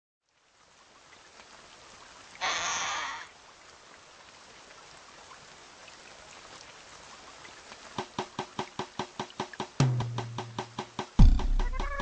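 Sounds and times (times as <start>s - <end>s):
light rain hissing: 0.3s - 11.2s
raindrops ticking: 7.4s - 12.0s.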